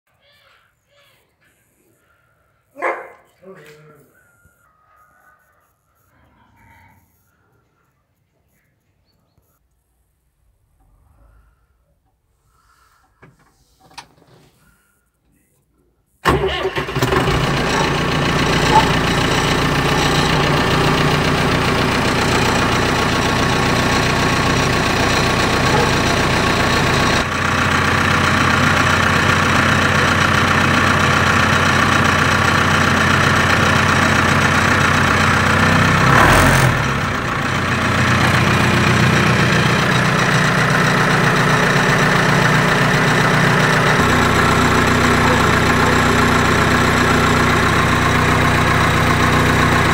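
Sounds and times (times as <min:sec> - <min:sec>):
diesel tractor engine idling: 0:16.2 - 0:49.9.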